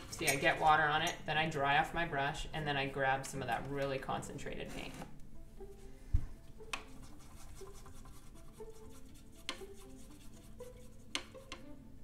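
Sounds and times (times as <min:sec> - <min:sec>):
brush scratching on paper: 0:06.8 - 0:11.6.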